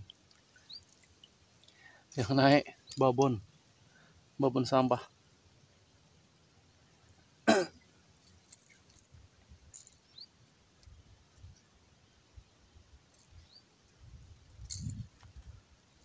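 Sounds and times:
rustle: 0.0s - 16.0s
man coughing: 7.5s - 7.8s.

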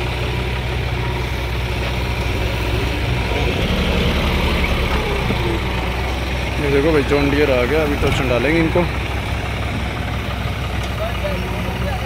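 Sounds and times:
diesel tractor engines idling: 0.0s - 12.0s.

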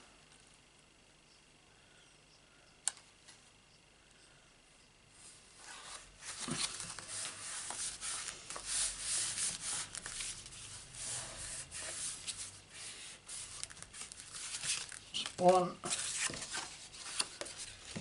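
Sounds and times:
card rustling and rubbing: 5.6s - 18.0s.

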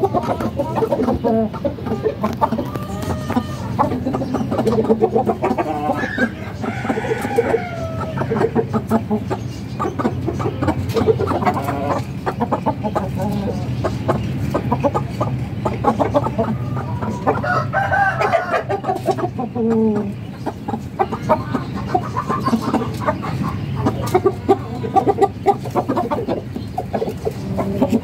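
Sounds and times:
chickens clucking: 0.0s - 28.0s
rooster crowing: 6.0s - 8.3s, 16.6s - 18.8s.

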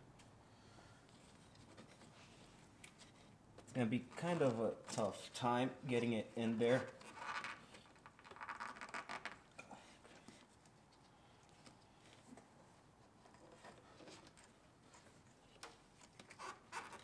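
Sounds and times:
clicks and rustles of hands: 6.8s - 17.0s.

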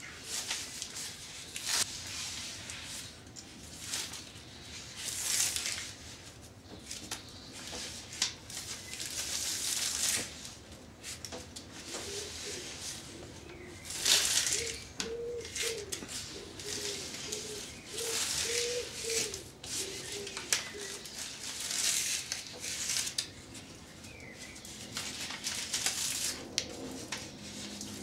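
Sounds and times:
rustling and handling noise: 0.0s - 28.0s
pigeon cooing: 11.8s - 21.2s.

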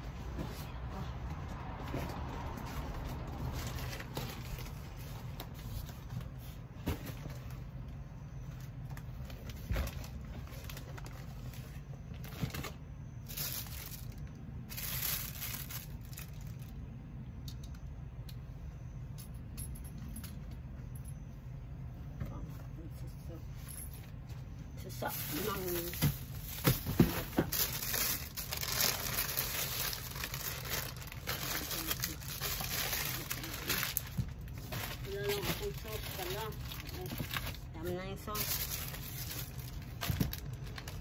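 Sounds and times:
packaging rustling and crinkling: 2.6s - 16.8s, 25.0s - 41.0s.

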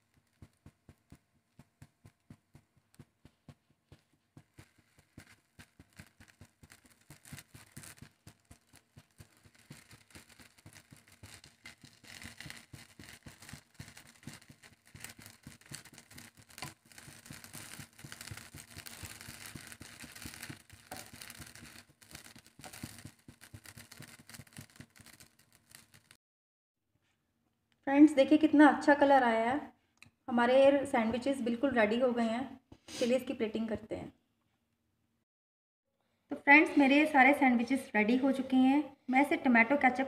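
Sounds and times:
bread sizzling in oil: 0.0s - 26.2s.

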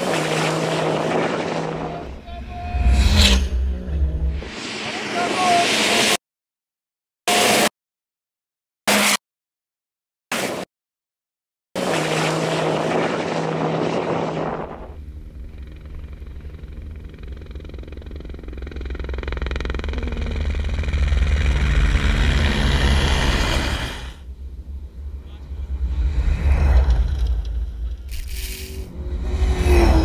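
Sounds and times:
helicopter flying low: 12.1s - 28.2s, 28.8s - 30.0s.

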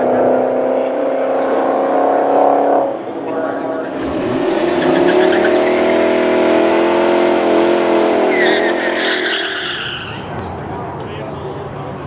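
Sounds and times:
car engine revving: 0.0s - 10.3s
tyre squeal: 4.7s - 6.1s, 8.3s - 10.3s.

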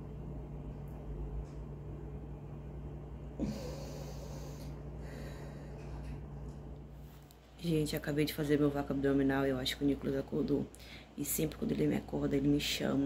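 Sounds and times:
low steady hum: 0.0s - 13.0s
woman breathing forcefully: 3.4s - 6.0s.

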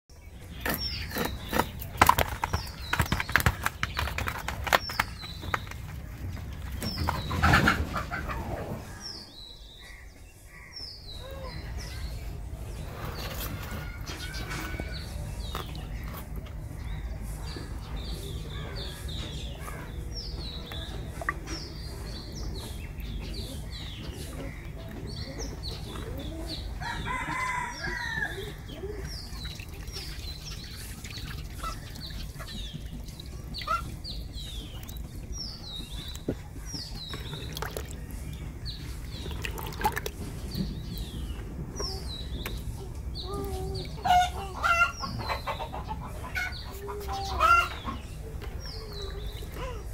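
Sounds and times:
chickens chirping: 0.1s - 49.9s
rooster crowing: 26.8s - 28.5s.

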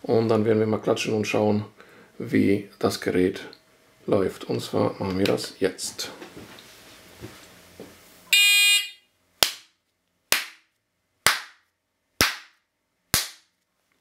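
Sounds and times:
shot timer start beep: 8.4s - 9.0s
hand claps: 9.4s - 9.7s, 10.3s - 11.6s, 12.2s - 13.5s.

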